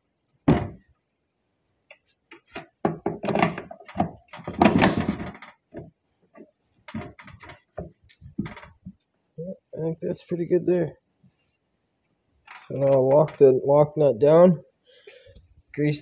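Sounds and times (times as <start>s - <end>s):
rustling and clunking: 0.4s - 1.0s, 1.9s - 9.1s.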